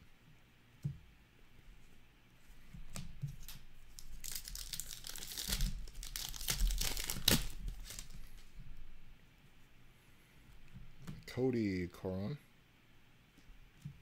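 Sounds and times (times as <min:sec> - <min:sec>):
foil wrapper crinkling: 0:03.4 - 0:08.4.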